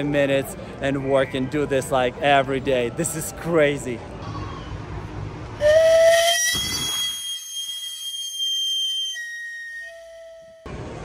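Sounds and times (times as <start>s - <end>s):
steam whistle: 5.6s - 10.7s.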